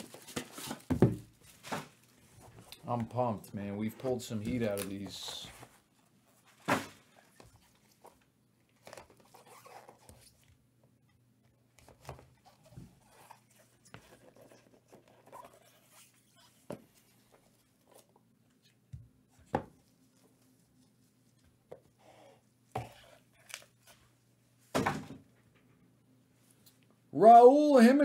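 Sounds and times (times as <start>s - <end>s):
rustling of card and wrapper: 0.0s - 3.2s, 4.0s - 10.5s.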